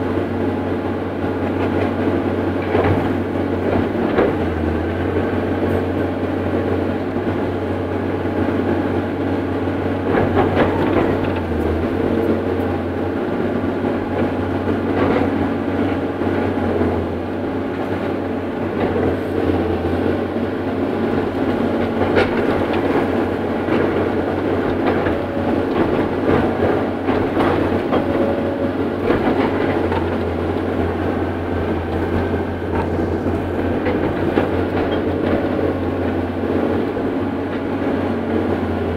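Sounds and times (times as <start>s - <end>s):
diesel engine running: 0.0s - 38.9s
knocks and rattles from cab: 21.3s - 36.6s.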